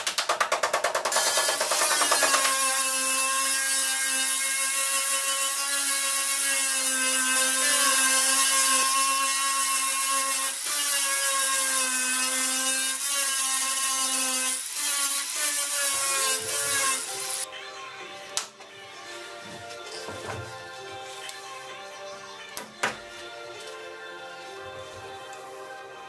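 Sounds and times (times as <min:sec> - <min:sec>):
angle grinder grinding metal: 0:01.1 - 0:17.5.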